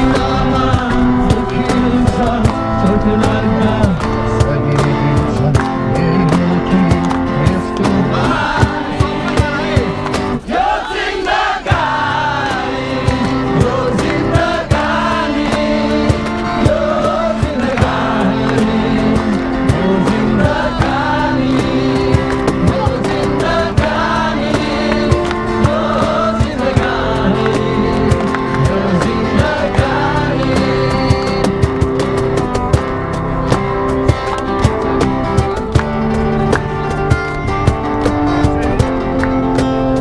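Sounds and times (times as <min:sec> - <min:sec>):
man singing into microphone: 0:00.0 - 0:10.0, 0:12.6 - 0:31.7
crowd singing along: 0:00.0 - 0:37.1
acoustic guitars strummed: 0:00.0 - 0:40.0.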